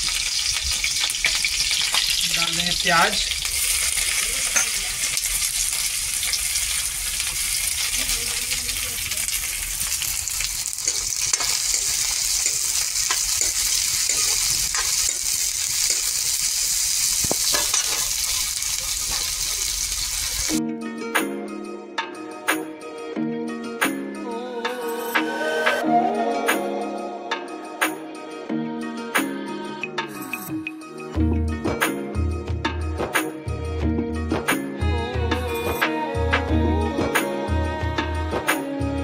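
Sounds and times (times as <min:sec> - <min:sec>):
onion sizzling in hot oil: 0:00.0 - 0:20.6
music: 0:00.1 - 0:09.4, 0:20.5 - 0:39.0.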